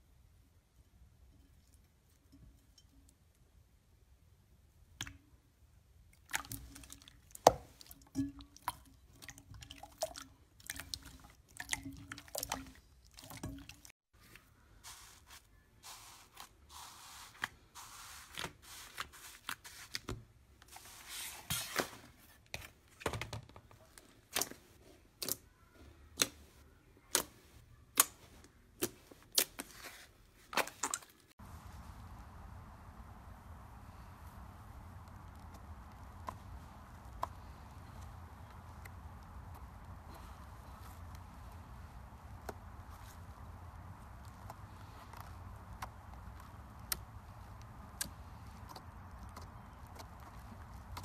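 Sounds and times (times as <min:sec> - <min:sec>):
slime squishing: 0:06.2 - 0:21.8, 0:23.9 - 0:31.3
kinetic sand scraping: 0:14.8 - 0:20.0.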